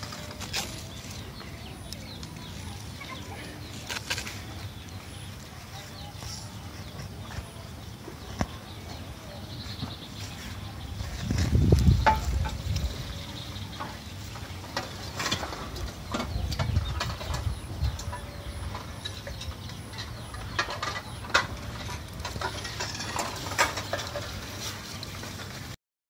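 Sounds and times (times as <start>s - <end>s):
birds rustling in dry grass nest: 0.0s - 7.6s, 9.5s - 16.0s
low bumps: 9.7s - 24.6s.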